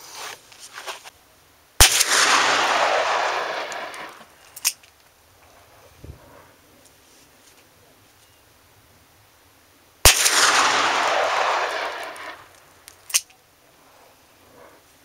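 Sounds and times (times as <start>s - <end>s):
revolver gunshot with echo: 1.8s - 4.2s, 10.1s - 12.5s.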